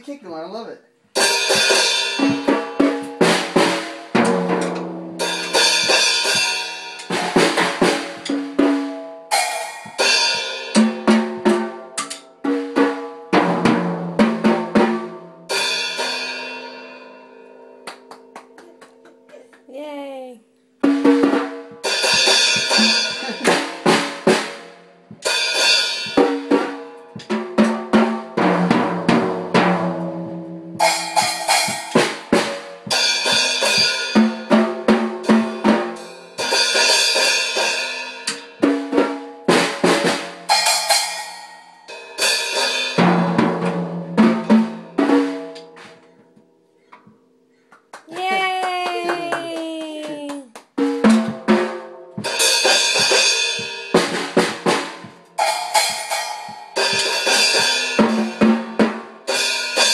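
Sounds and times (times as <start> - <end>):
child playing drum kit: 0.0 - 20.0, 20.8 - 46.4, 47.9 - 59.9
cymbals ringing: 1.2 - 12.5, 15.5 - 18.4, 20.8 - 27.3, 29.6 - 38.6, 52.2 - 59.9.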